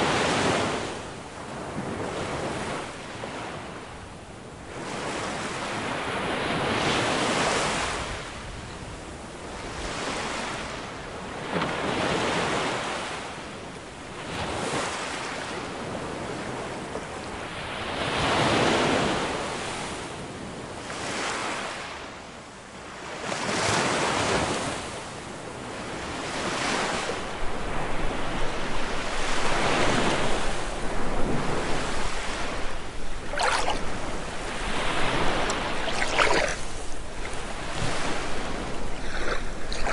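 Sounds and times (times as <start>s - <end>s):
wind buffeting microphone: 27.2s - 39.9s
waves splashing against wooden posts: 31.3s - 39.9s.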